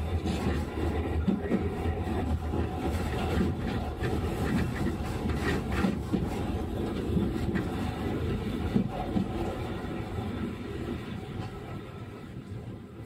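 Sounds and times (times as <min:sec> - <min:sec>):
tram wheels rumbling: 0:00.0 - 0:13.0
clacks and rattles: 0:00.2 - 0:09.5.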